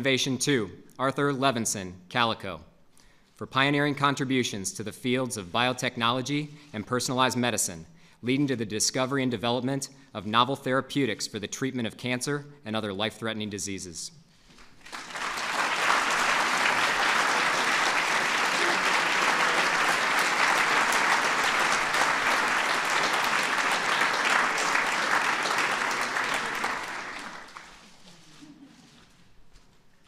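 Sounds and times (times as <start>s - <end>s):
audience applauding: 14.8s - 27.9s.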